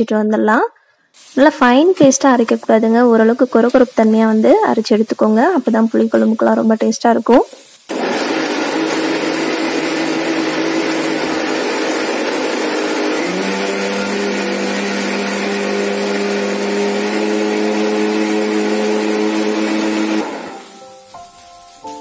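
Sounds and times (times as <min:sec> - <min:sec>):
mixer grinder motor running: 0:07.9 - 0:20.8.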